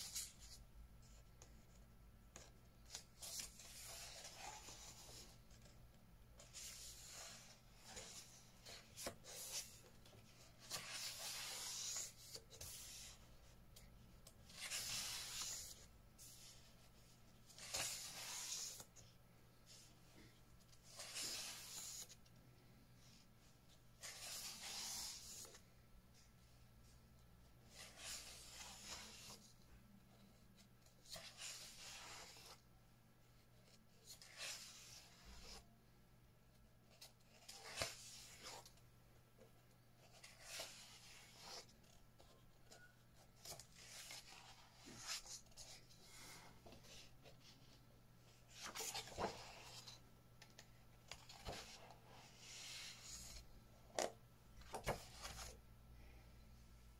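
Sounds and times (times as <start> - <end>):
paper pages turning: 2.4 - 5.7, 6.4 - 16.7, 17.5 - 18.9, 19.7 - 22.2, 24.0 - 25.7, 27.6 - 29.5, 48.4 - 53.4, 54.0 - 55.6
paper pages rustling: 6.4 - 16.7, 17.5 - 18.9, 40.0 - 53.4.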